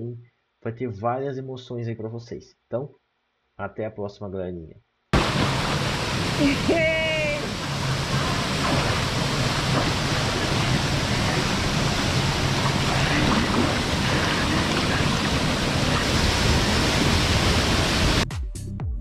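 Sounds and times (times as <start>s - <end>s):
waterfall rushing: 5.2s - 18.2s
electronic music with steady beat: 18.2s - 19.0s.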